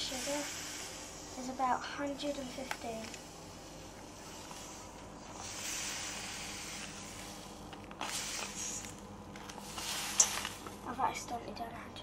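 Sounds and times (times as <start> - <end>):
sugar pouring into metal bowl: 8.0 - 9.0.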